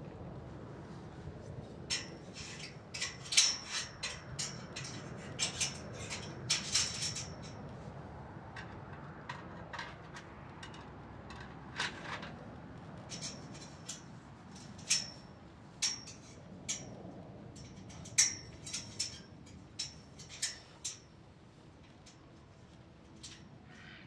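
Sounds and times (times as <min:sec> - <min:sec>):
metal clicks and scrapes: 0:01.9 - 0:07.6, 0:08.5 - 0:12.4, 0:13.0 - 0:17.0, 0:17.6 - 0:21.1.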